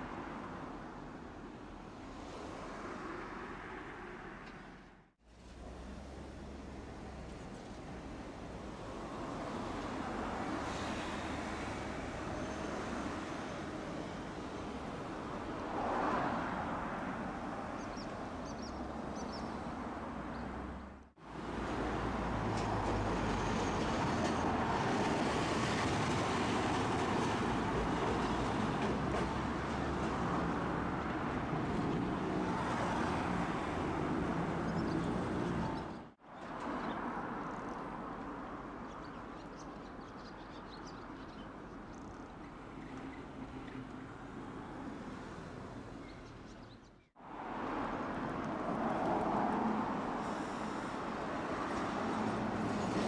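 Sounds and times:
streetcar running with low rumble: 0:20.8 - 0:36.0.

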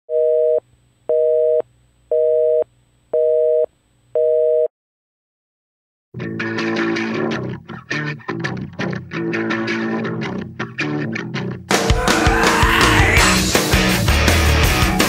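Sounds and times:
telephone busy signal beeps: 0:03.2 - 0:04.7
guitar and bass music: 0:06.2 - 0:15.0.

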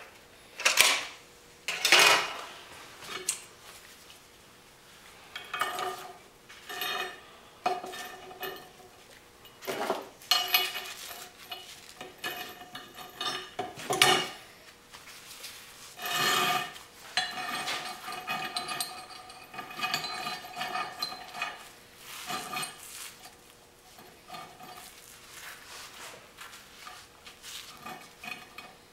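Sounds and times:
metal parts clinking on steel plate: 0:09.4 - 0:14.4, 0:16.0 - 0:21.6
metal scraping on metal: 0:15.8 - 0:26.2.

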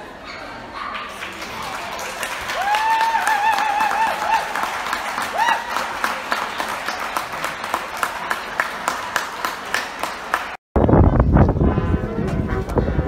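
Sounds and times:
audience applauding: 0:01.0 - 0:10.6.

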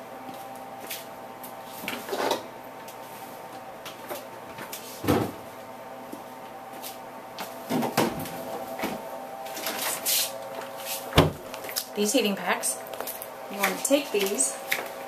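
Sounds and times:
steady hum: 0:00.0 - 0:15.0
plastic cooler thump: 0:05.0 - 0:05.4, 0:11.2 - 0:11.4.

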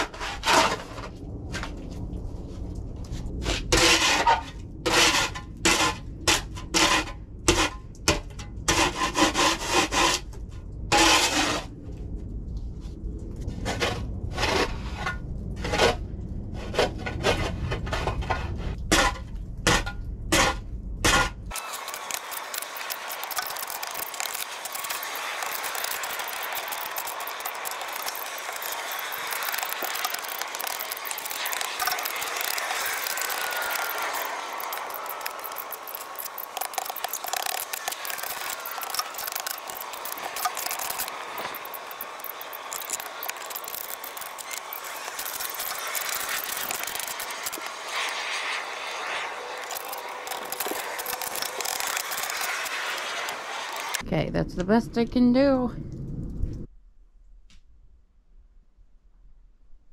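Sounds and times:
snow and ice crunching: 0:21.1 - 0:54.0.

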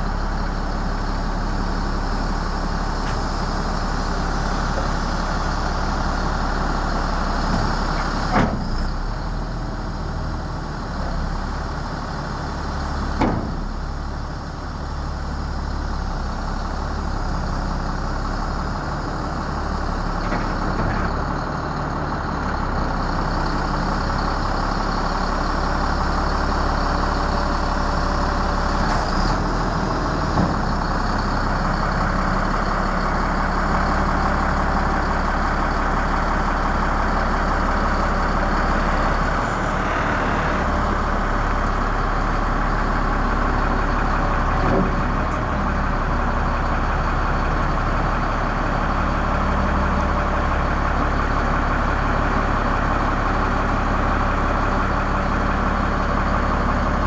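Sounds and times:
diesel truck engine running: 0:00.0 - 0:57.0.

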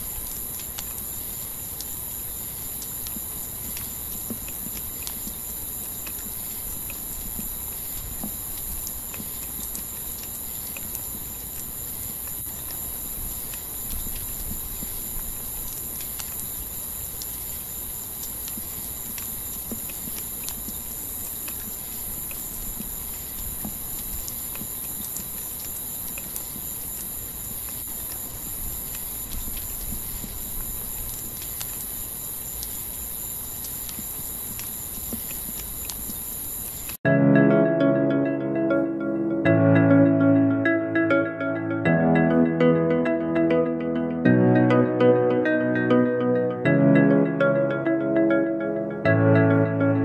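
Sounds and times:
faint ticks: 0:00.0 - 0:37.0
high-pitched insect chorus: 0:00.0 - 0:37.0
high-pitched night chorus: 0:37.1 - 0:50.0.

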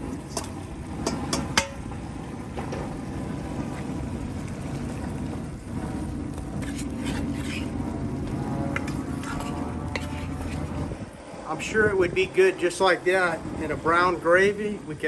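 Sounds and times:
gas burner rumble: 0:00.0 - 0:15.0
metal bowl clanking on pot rim: 0:00.3 - 0:01.8
wooden spoon stirring and scraping pot: 0:05.9 - 0:11.0.

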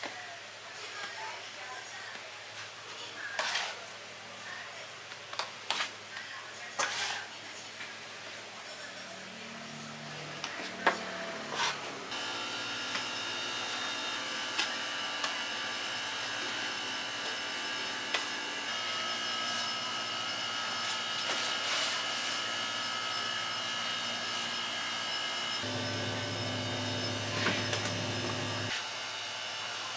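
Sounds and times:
motor whine: 0:09.2 - 0:29.9
electric motor hum: 0:09.3 - 0:29.2.

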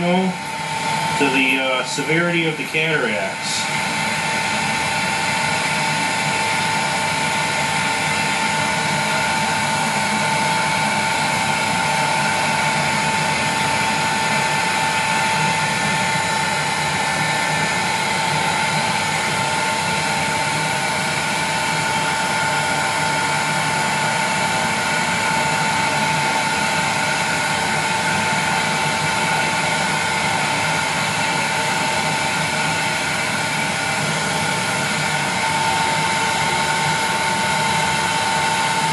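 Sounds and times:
heat gun blowing air: 0:00.0 - 0:38.9.

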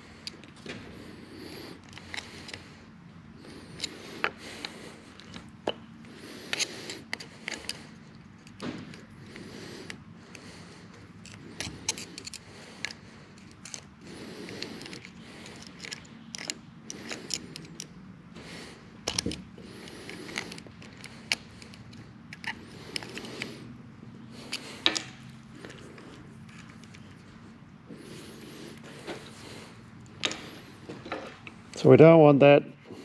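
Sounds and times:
metallic clicks and scrapes: 0:01.8 - 0:02.6, 0:03.5 - 0:18.0, 0:19.0 - 0:27.3.

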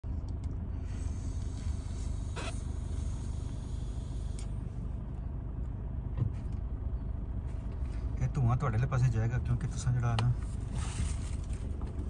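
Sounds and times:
car idling in traffic: 0:00.0 - 0:12.0
short rustle or scrape: 0:10.5 - 0:11.7.

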